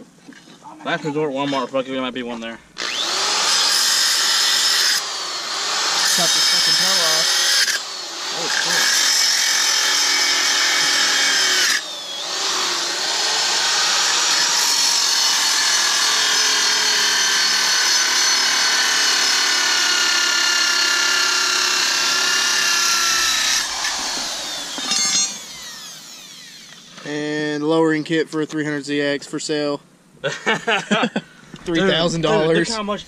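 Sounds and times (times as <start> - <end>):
angle grinder cutting steel: 2.8 - 27.1.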